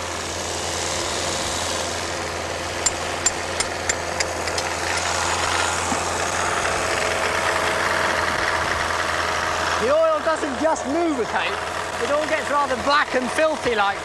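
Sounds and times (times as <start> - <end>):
car engine idling: 1.9 - 10.7.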